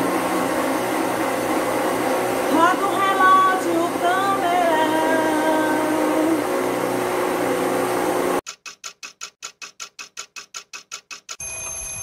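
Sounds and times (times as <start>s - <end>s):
blender running: 0.0s - 8.4s
fast clock ticking: 8.4s - 11.4s.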